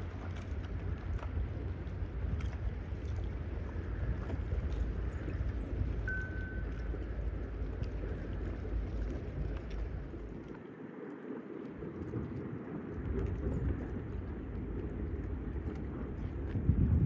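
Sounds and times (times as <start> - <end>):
faint clicks: 0.0 - 12.4
wind buffeting microphone: 0.0 - 17.0.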